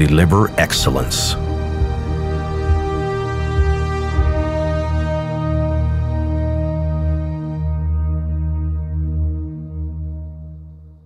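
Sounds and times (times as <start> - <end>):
slow ambient music: 0.0 - 11.0.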